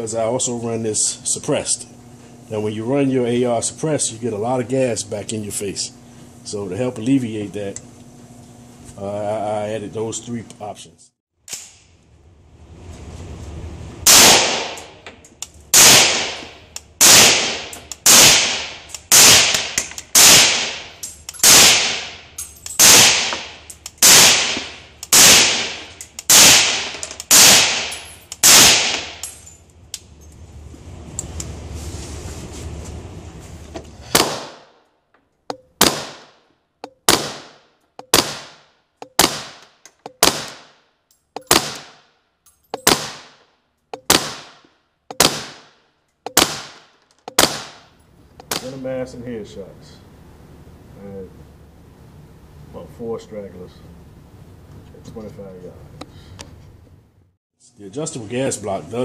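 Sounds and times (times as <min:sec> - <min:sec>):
gunshots echoing indoors: 0:14.1 - 0:15.0, 0:35.8 - 0:36.4, 0:37.1 - 0:38.6, 0:44.1 - 0:47.8.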